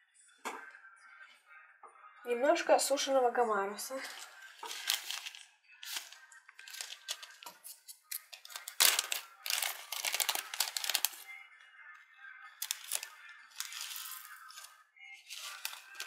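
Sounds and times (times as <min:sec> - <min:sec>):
plastic bag crinkling: 0:04.0 - 0:11.3, 0:12.6 - 0:16.0.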